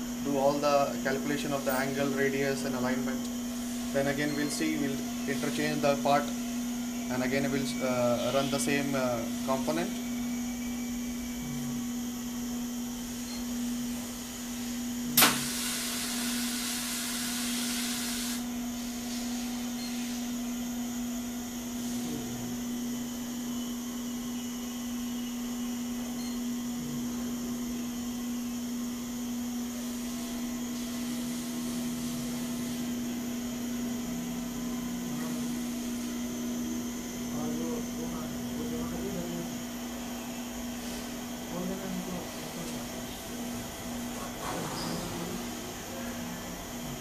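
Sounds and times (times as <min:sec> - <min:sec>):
measuring machine drive humming: 0:00.0 - 0:47.0
hiss: 0:14.3 - 0:20.4, 0:29.8 - 0:32.9
sharp click: 0:15.2 - 0:15.4.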